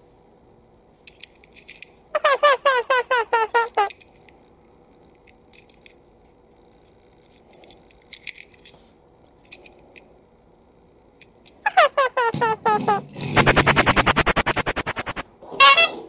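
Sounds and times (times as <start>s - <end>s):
toy train clicks and taps: 7.2s - 8.7s
short falling squeaks: 11.7s - 13.7s.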